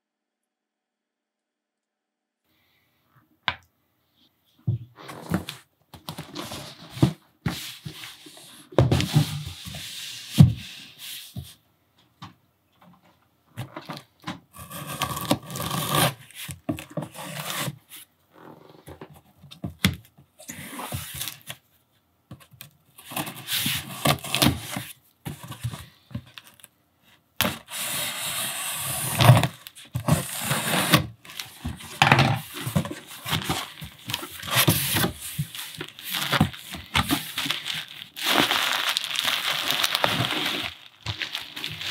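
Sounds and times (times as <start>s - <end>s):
bubble wrap rustling: 29.2s - 41.9s.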